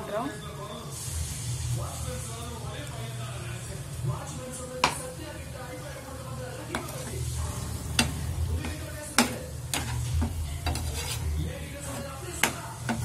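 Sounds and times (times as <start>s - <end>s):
chicken sizzling in a pan: 0.2s - 13.0s
metal spoon scraping a pan: 6.7s - 13.0s.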